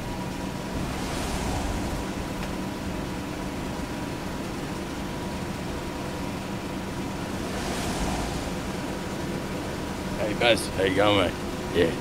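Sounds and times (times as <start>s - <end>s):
vehicle engine and road rumble: 0.0s - 12.0s
vehicle passing: 0.6s - 3.6s, 7.0s - 10.4s.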